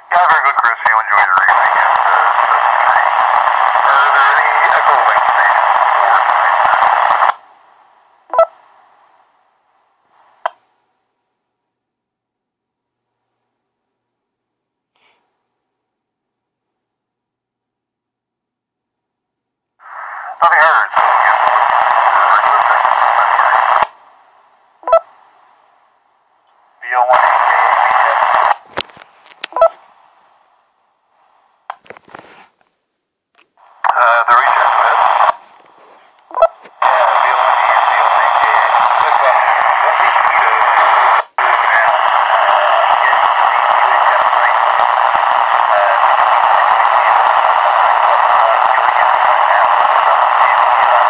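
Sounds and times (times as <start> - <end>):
harsh crackling radio noise: 0.0 - 9.2, 19.8 - 25.5, 26.6 - 30.2, 33.6 - 51.0.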